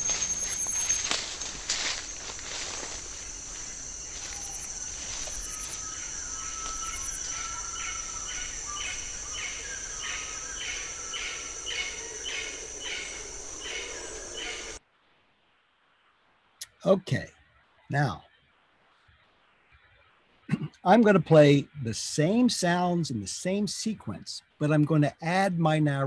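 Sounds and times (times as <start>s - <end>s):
footsteps: 0.0s - 5.8s
high insect buzz: 0.0s - 14.8s
pulsing insect call: 0.0s - 14.8s.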